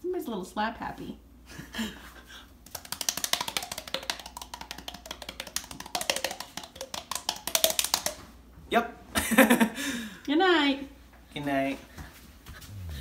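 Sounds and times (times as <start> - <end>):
hollow cheek pops: 2.6 - 8.4.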